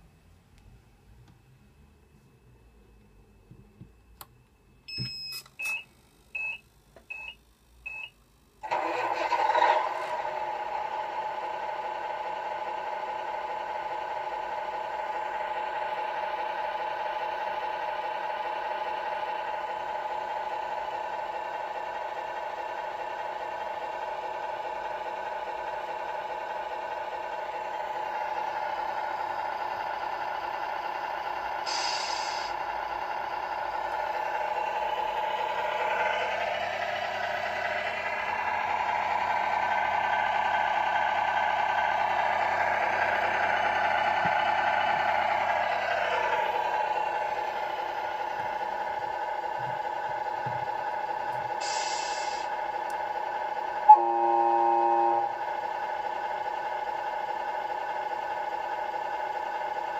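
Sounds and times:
short electronic beeps: 4.9 - 8.1, 53.9 - 55.3
simulated diesel engine idling: 6.4 - 59.9
short hiss: 31.7 - 32.5, 51.6 - 52.5.

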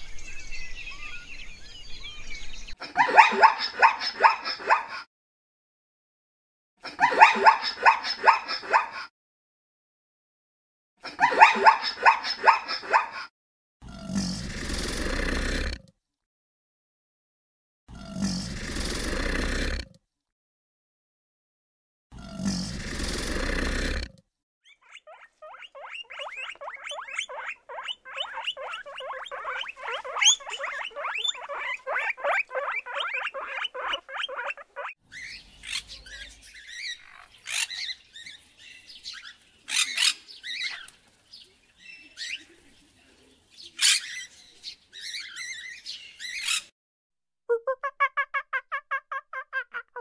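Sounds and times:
sharp high-pitched animal calls: 24.7 - 37.8, 47.5 - 50.0
fast chattering animal calls: 24.7 - 37.9.

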